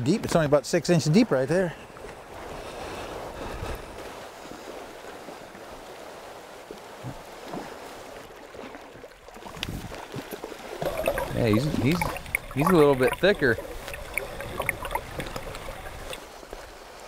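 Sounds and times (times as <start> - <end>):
river water rushing: 10.5 - 17.0.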